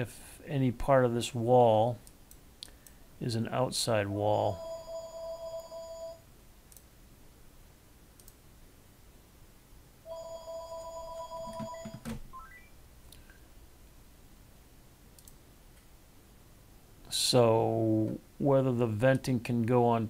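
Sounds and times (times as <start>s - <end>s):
telephone ringing: 4.5s - 6.2s, 10.1s - 12.7s
click: 8.2s - 8.4s, 15.2s - 15.9s
short rising beeps: 11.7s - 12.8s.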